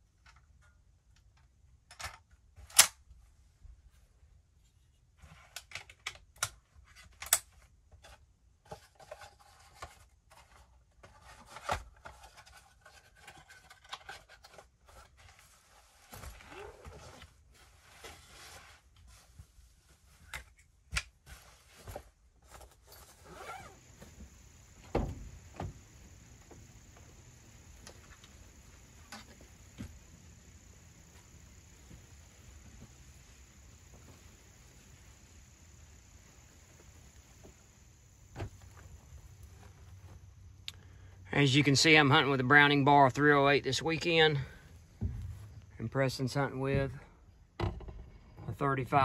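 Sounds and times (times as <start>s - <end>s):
rifle handled in soft case: 8.8s - 19.3s, 20.0s - 40.2s
high insect buzz: 23.2s - 40.6s
heavy thump: 24.0s - 27.1s, 44.9s - 45.6s.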